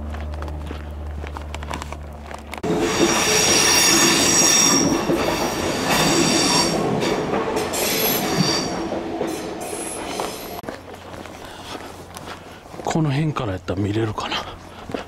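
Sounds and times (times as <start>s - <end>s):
rumble of train cars: 0.0s - 15.0s
train wheels squealing: 2.7s - 10.6s.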